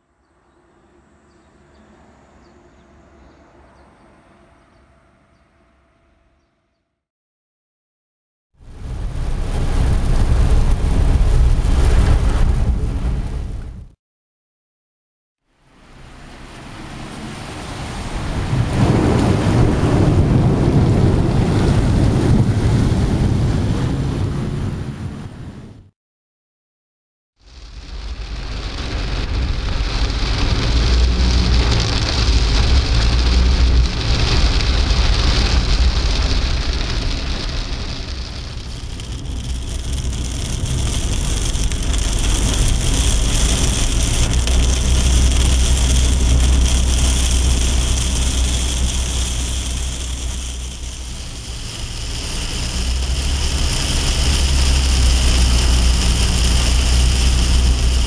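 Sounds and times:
heavy rain drumming on car: 8.6 - 13.9, 15.8 - 25.2, 27.4 - 58.0
car low rumble: 8.6 - 14.0, 15.6 - 25.8, 27.5 - 58.0.

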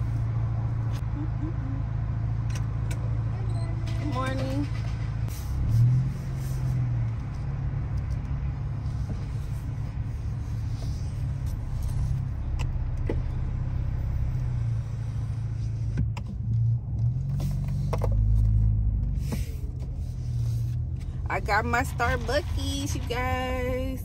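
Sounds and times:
low hum: 0.0 - 17.1
car engine rumble from cabin: 0.0 - 24.0.

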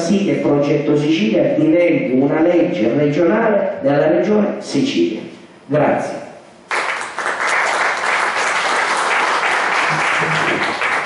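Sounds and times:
audience applauding: 6.7 - 11.0.

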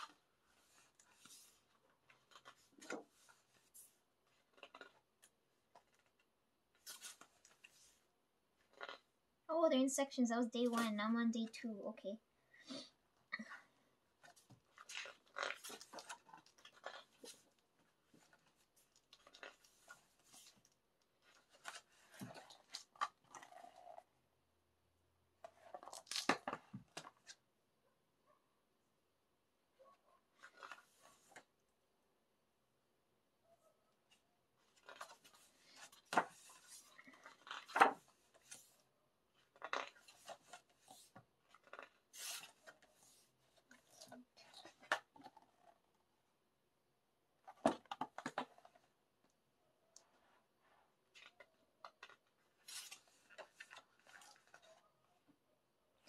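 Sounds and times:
pages rustling: 0.0 - 9.0, 14.2 - 24.0, 25.4 - 27.4, 30.4 - 31.5, 34.6 - 45.7, 51.1 - 54.8.

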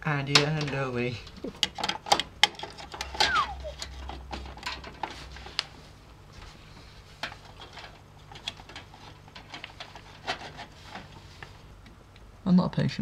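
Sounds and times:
plastic and metal clicks and scrapes: 0.3 - 5.8, 7.2 - 11.6
short falling squeak: 3.2 - 3.8.

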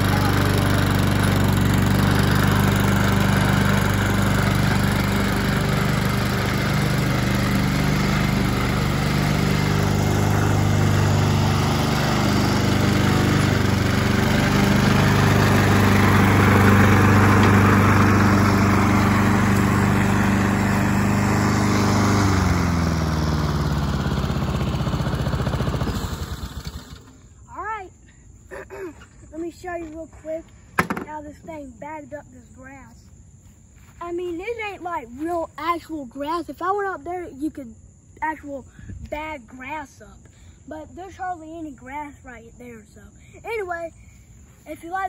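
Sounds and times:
lawn mower engine running: 0.0 - 27.8, 30.6 - 31.6.

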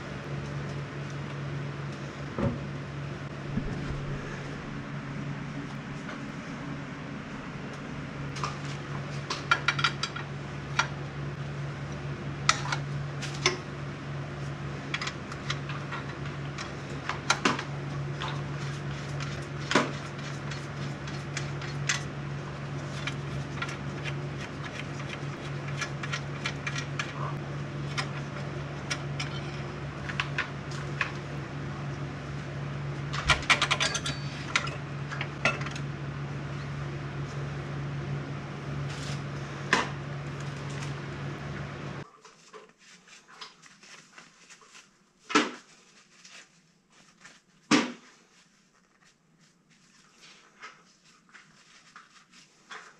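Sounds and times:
steady low hum: 0.0 - 42.1
metal tools clinking: 33.5 - 34.8.

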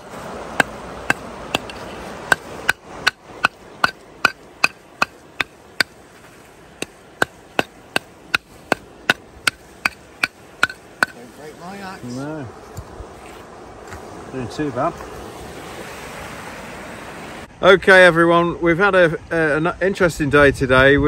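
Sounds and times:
metal rod tapping on iron: 0.6 - 6.0, 6.8 - 11.2.

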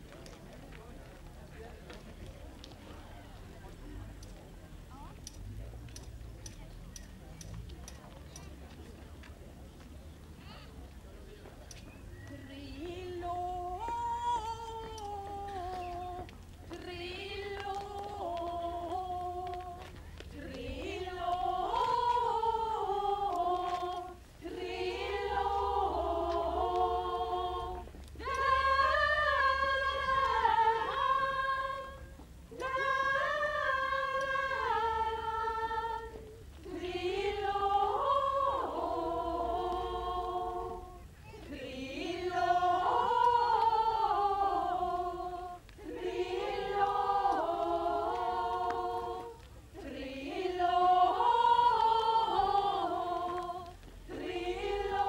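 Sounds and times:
women singing unaccompanied: 12.2 - 55.0.

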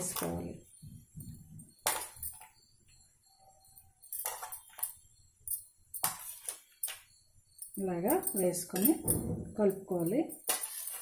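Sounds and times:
spoon clinking on metal plate: 3.8 - 11.0.

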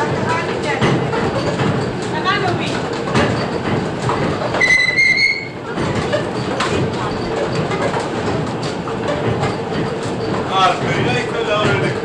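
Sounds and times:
windmill machinery clattering: 0.0 - 12.0
high squeal: 4.6 - 5.6.

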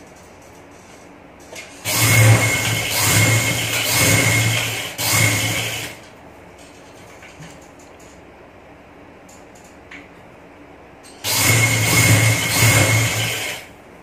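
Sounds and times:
sewing machine stitching fabric: 1.8 - 6.0, 11.2 - 13.7.

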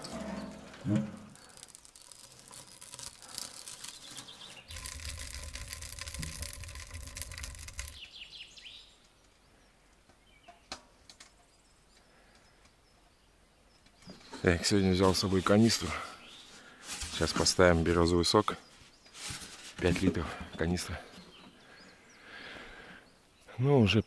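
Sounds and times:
wood fire crackling: 0.0 - 9.3.

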